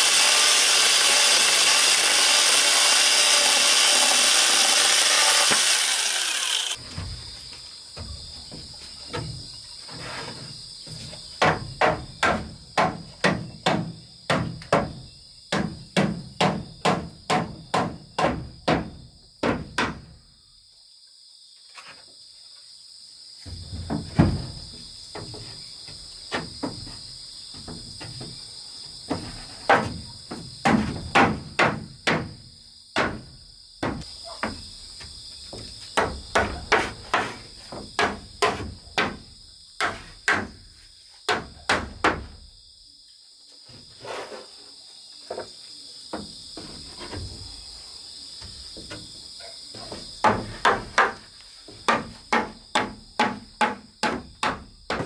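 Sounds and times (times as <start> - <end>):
insects buzzing: 0.0 - 55.0
hammer striking wood: 11.4 - 14.9, 15.5 - 20.0, 51.8 - 55.0.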